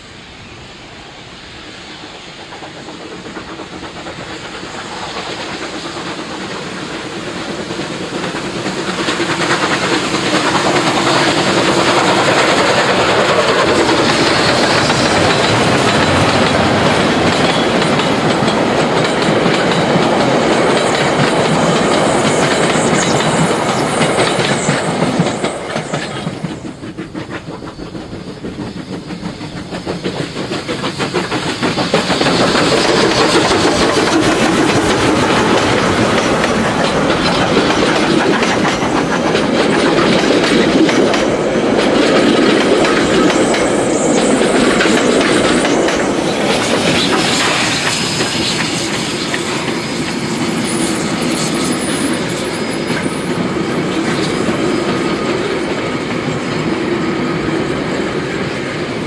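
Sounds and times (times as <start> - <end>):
steam train passing: 0.0 - 59.0
wheels clattering over rail joints: 29.6 - 56.7.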